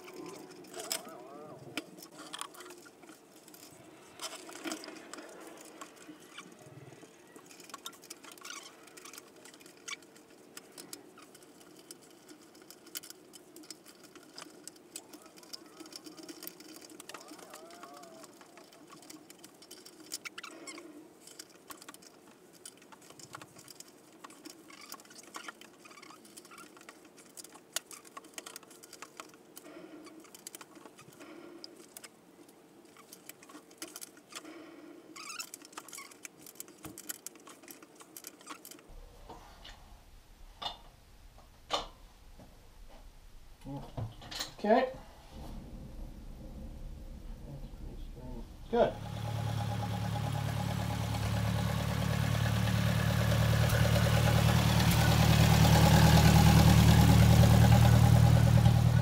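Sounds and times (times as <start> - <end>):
hand tools clicking and scraping on metal: 0.0 - 38.9, 48.6 - 59.0
steady low hum: 44.9 - 55.9.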